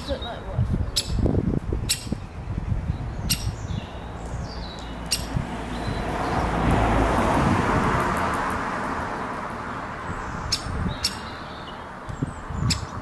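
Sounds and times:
woodpecker nestling calls: 0.0 - 1.2, 1.8 - 6.4, 10.1 - 13.0.

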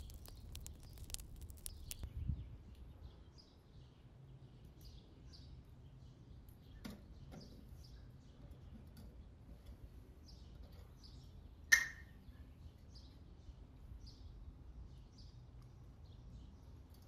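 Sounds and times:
wood fire crackling: 0.0 - 2.1
small birds chirping: 0.0 - 17.0.

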